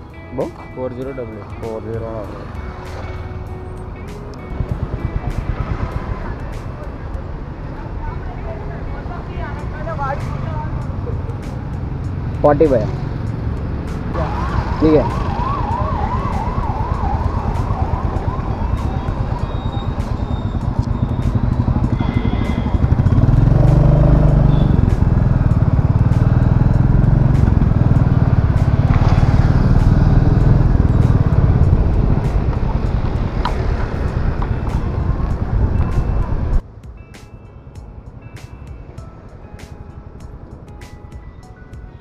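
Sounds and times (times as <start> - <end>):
motorcycle engine rumble: 0.0 - 37.0
wind: 0.0 - 42.0
siren warbling: 14.1 - 24.7.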